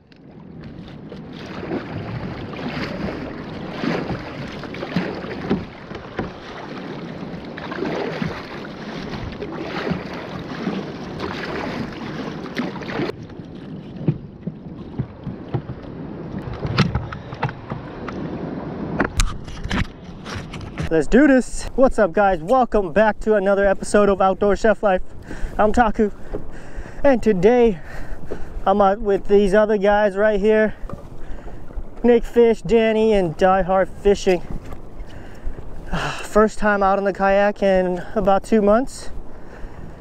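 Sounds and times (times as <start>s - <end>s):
kayak paddle splashing: 0.0s - 24.4s, 25.0s - 40.0s
sharp clicks and knocks: 14.0s - 18.2s.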